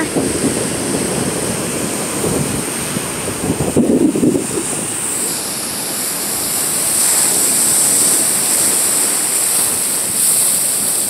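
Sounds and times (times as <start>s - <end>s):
ocean surf washing over rocks: 0.0s - 11.0s.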